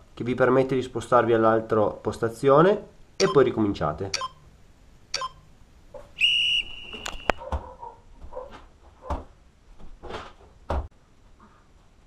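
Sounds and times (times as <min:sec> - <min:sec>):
high timer beep: 0:03.2 - 0:03.5, 0:04.1 - 0:04.5, 0:05.1 - 0:05.5
thuds of jumping onto bench: 0:09.0 - 0:10.9.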